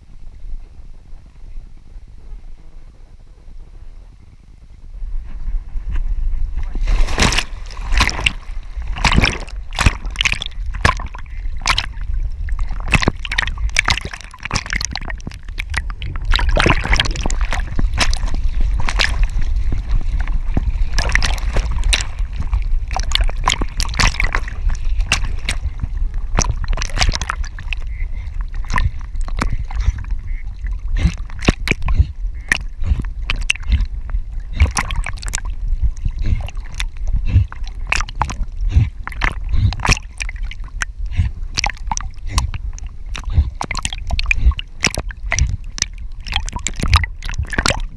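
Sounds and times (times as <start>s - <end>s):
low rumble of water: 0.0s - 47.9s
dog paddling splashes: 6.7s - 33.9s.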